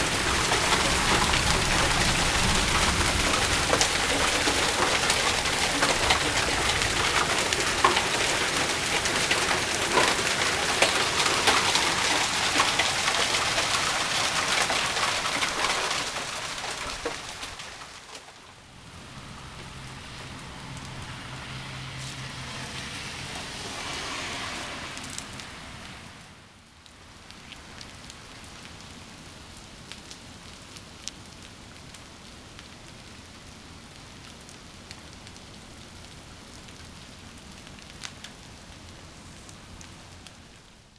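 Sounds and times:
hail pelting on concrete: 0:00.0 - 0:19.0.

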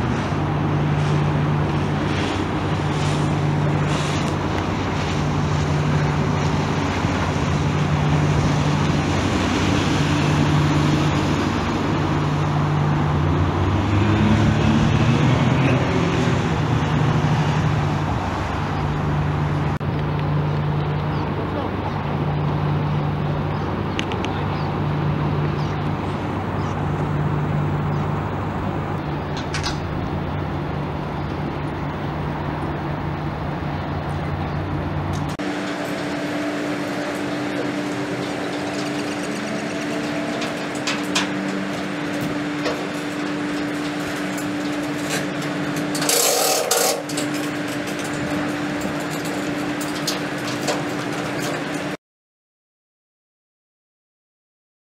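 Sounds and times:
outboard motor idling: 0:00.0 - 0:13.6, 0:17.8 - 0:52.0
hull scraping on trailer: 0:00.0 - 0:19.8, 0:24.6 - 0:52.0
engine hum: 0:00.0 - 0:52.0
hand winch clicking: 0:37.6 - 0:51.9.

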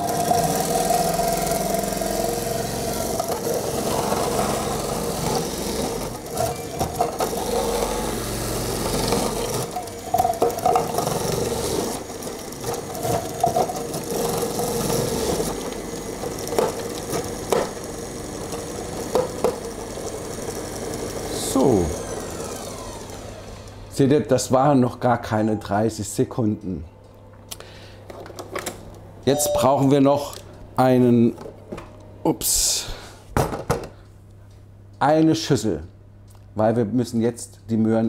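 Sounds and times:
kitchen machine motor whir: 0:00.0 - 0:24.1.

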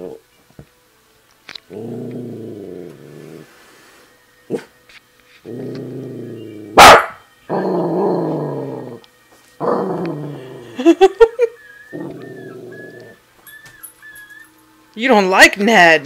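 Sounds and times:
dog growling: 0:01.7 - 0:03.5, 0:05.4 - 0:06.8, 0:07.5 - 0:11.0, 0:11.8 - 0:13.2
dog barking sharply: 0:06.8 - 0:07.2.

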